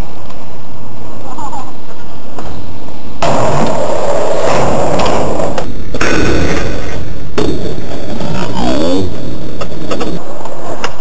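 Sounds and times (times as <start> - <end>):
skateboard wheels rolling on concrete: 3.2 - 11.0.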